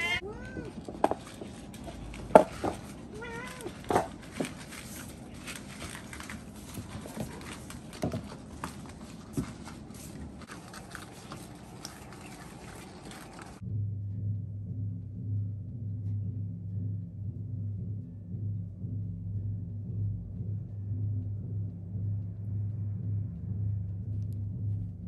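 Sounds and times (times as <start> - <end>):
cat meowing: 0.0 - 0.9, 3.1 - 4.1
cats eating from bowls: 0.0 - 13.6.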